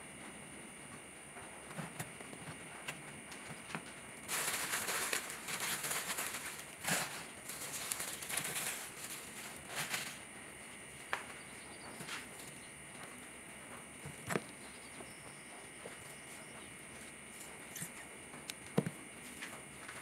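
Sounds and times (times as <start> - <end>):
leaves rustling and crackling: 4.2 - 10.2
high insect trill: 4.2 - 12.8.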